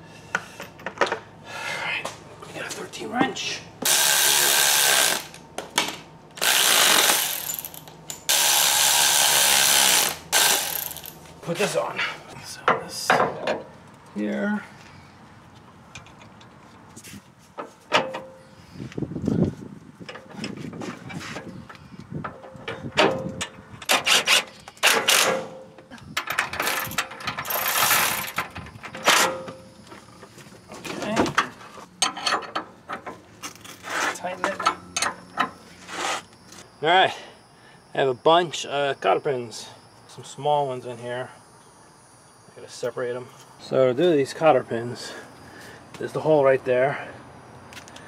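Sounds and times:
electric ratchet running: 3.8s - 5.4s, 6.4s - 11.2s, 26.6s - 28.4s.

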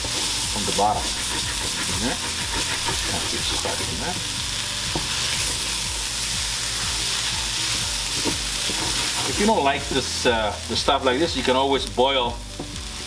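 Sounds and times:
rice sizzling in oil: 0.0s - 13.0s
spoon scraping pan: 0.1s - 4.1s, 8.1s - 9.5s.

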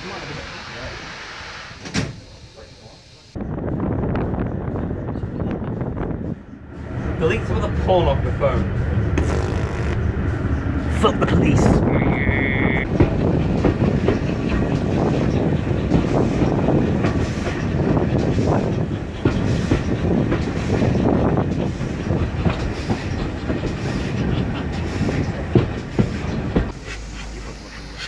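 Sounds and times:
train carriage rumble: 0.0s - 28.0s
wheels clattering over rail joints: 12.8s - 26.9s.

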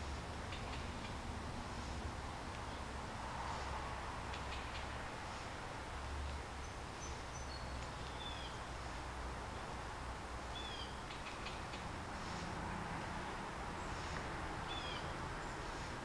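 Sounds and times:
steady background hiss: 0.0s - 16.0s
bird chirps: 6.6s - 8.6s, 10.5s - 11.7s.

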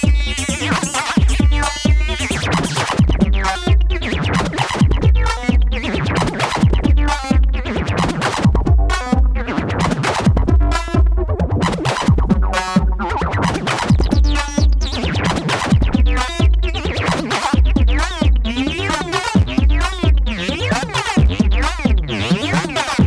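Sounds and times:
deep kick drums: 1.2s - 2.3s, 3.0s - 7.8s, 8.4s - 17.0s, 17.6s - 18.7s, 19.4s - 20.5s, 21.2s - 22.2s.

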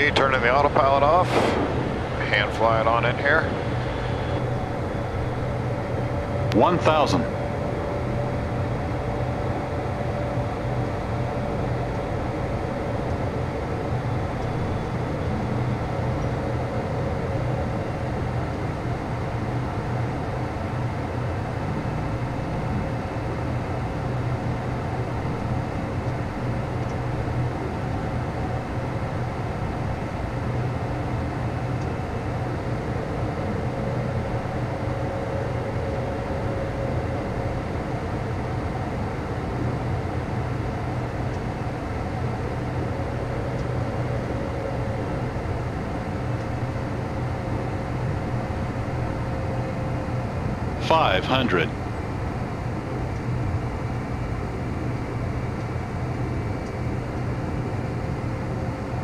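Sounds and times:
jet engines running: 0.0s - 59.0s
low hum: 0.0s - 59.0s
thin steady whine: 0.0s - 59.0s
air rushing past airframe: 1.2s - 2.8s.

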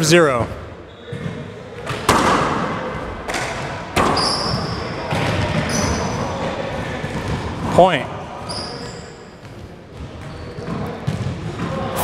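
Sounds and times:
sneakers squeaking on floor: 0.4s - 2.2s, 2.9s - 12.0s
handball smacking off walls: 1.2s - 5.7s.

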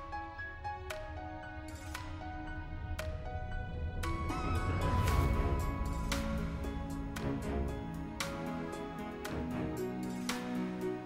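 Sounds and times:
sustained music tones: 0.0s - 11.0s
low hum: 2.2s - 10.0s.

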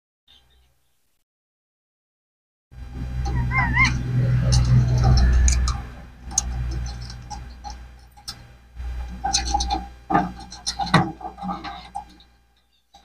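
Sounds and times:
low rumble: 2.8s - 10.6s
parakeets clicking and chirping: 3.0s - 13.0s.

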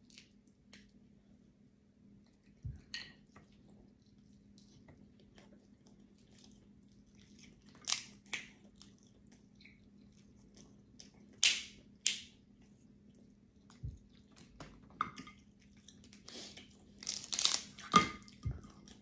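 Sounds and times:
chewing and sucking mouth sounds: 3.3s - 11.4s
crab shell cracking: 17.0s - 17.8s.

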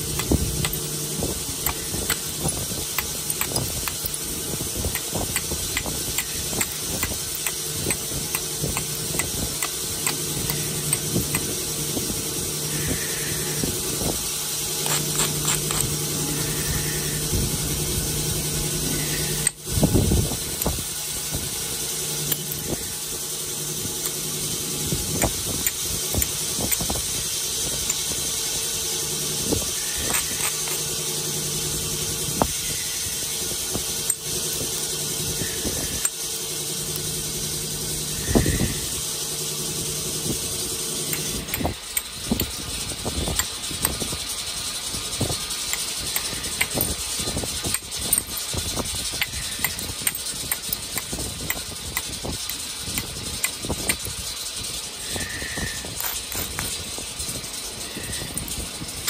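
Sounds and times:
stone scratching clicks: 0.0s - 11.6s, 14.8s - 17.2s, 18.8s - 19.6s, 22.2s - 22.8s, 24.0s - 24.2s, 25.1s - 27.0s, 29.8s - 30.9s, 41.1s - 42.5s, 45.7s - 47.0s, 49.2s - 54.0s, 55.5s - 56.9s
low hum: 0.0s - 44.2s.

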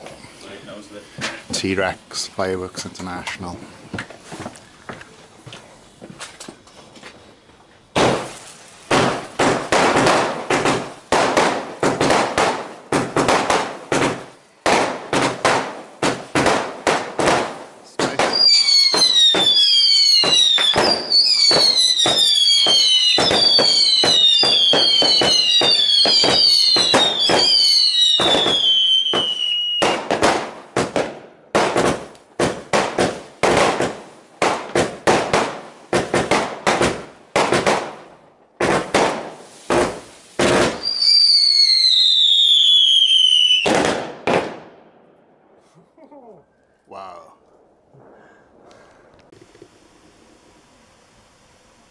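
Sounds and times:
falling firework whistles: 7.9s - 31.1s, 38.8s - 44.6s
firework shots and bursts: 7.9s - 45.0s.

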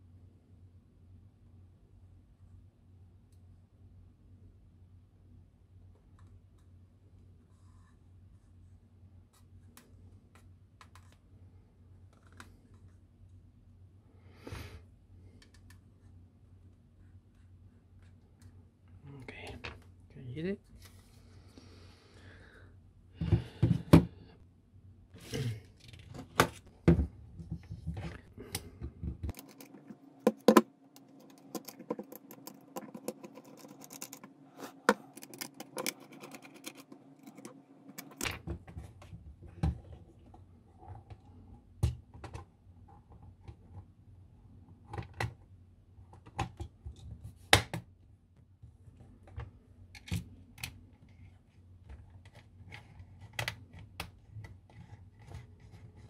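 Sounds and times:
faint steady hum: 0.0s - 56.0s
parts clicking and knocking: 26.8s - 38.5s.

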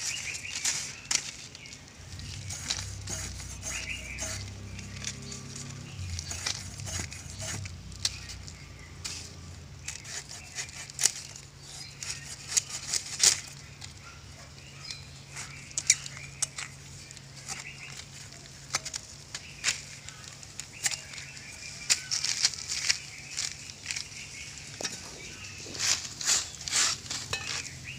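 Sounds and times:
fish scraping against blade: 2.4s - 4.5s.

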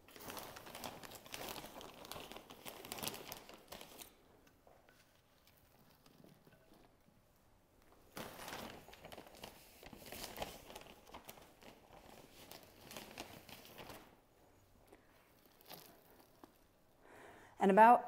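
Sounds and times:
potting mix rustling and crinkling: 0.0s - 7.2s, 7.8s - 17.0s.

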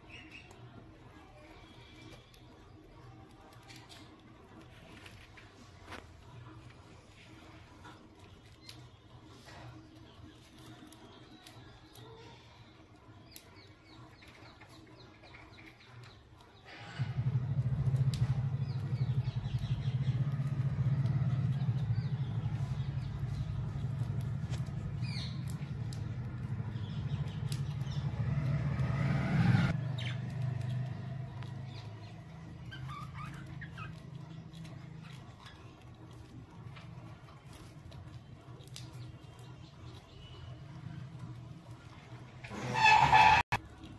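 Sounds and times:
birds clicking in cage: 1.9s - 6.0s, 13.2s - 43.0s
motor engine rumbling: 16.6s - 43.7s
budgerigars chirping and chattering: 18.5s - 28.5s, 29.9s - 35.7s.

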